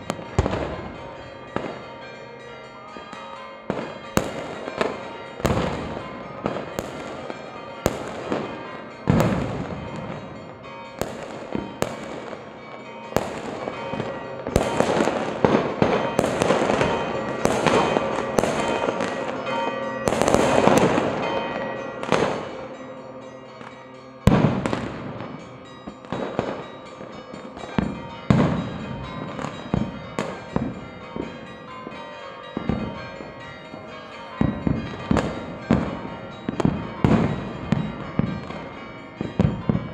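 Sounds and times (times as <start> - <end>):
fireworks bangs: 0.0 - 1.8, 3.7 - 10.3, 11.0 - 22.8, 23.6 - 31.4
firecrackers crackling: 11.0 - 19.5, 20.1 - 21.4.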